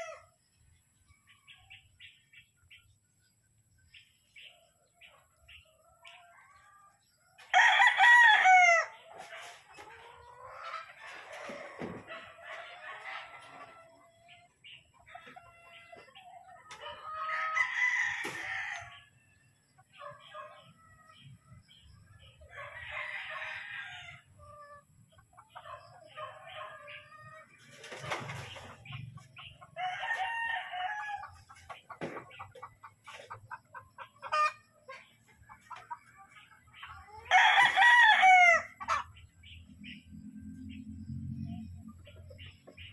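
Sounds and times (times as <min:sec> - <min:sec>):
roosters crowing: 0:00.0 - 0:00.3, 0:07.4 - 0:09.1, 0:16.9 - 0:19.1, 0:22.4 - 0:24.4, 0:29.7 - 0:31.5, 0:37.2 - 0:39.2.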